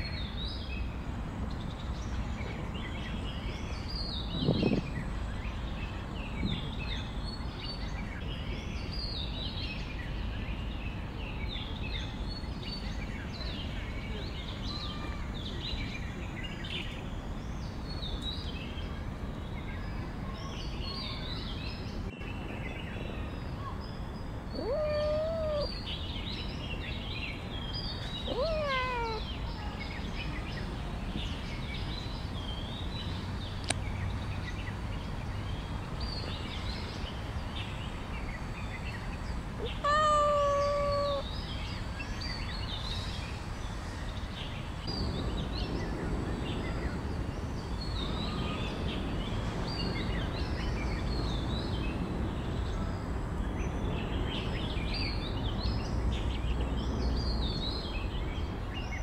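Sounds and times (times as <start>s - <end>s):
outdoor background noise: 0.0s - 59.0s
small birds chirping: 0.0s - 59.0s
cat meowing: 24.5s - 25.7s, 28.2s - 29.3s, 39.6s - 41.3s.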